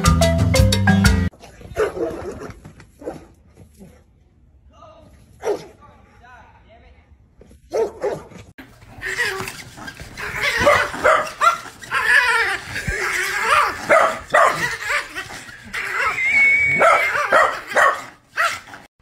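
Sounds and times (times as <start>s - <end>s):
small dog barking: 1.7s - 3.3s, 5.4s - 5.7s, 7.7s - 8.3s, 10.2s - 12.4s, 13.4s - 15.1s, 16.7s - 18.7s.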